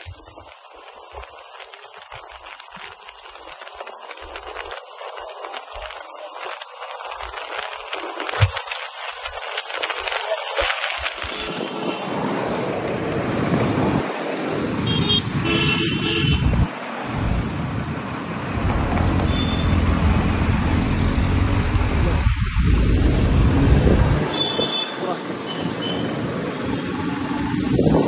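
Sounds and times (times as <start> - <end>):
traffic noise: 0.0 - 28.0
vehicle horn tooting: 11.3 - 12.1, 14.9 - 16.6, 24.3 - 26.1.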